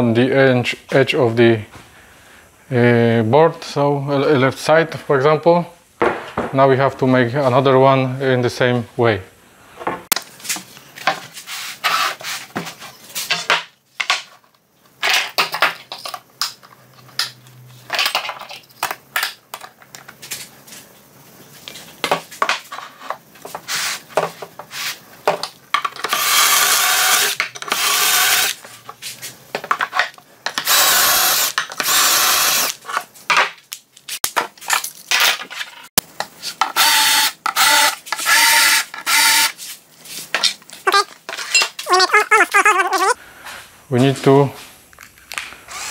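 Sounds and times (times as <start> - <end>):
cordless drill boring: 26.0 - 28.6, 30.6 - 32.7, 36.8 - 39.5.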